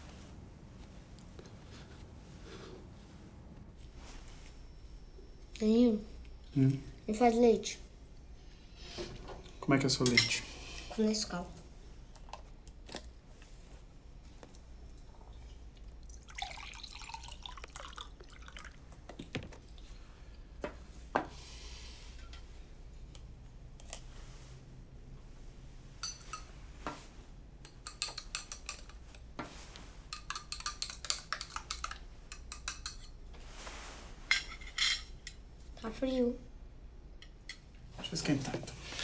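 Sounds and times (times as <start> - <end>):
milk pouring into a glass: 16.0 - 18.8.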